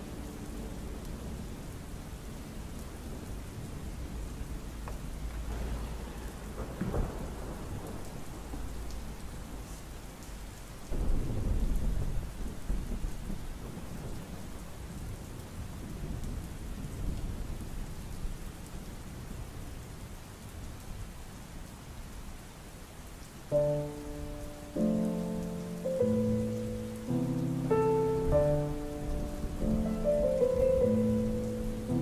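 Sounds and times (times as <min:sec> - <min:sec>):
thunder cracking and rumbling: 0:00.0 - 0:10.2, 0:10.8 - 0:17.8, 0:28.2 - 0:32.0
steady rain: 0:00.0 - 0:32.0.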